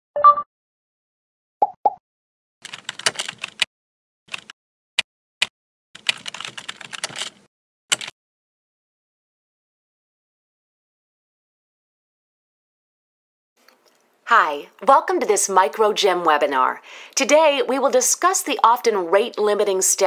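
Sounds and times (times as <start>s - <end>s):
keyboard typing: 2.6s - 3.7s, 4.3s - 4.5s, 6.0s - 8.1s.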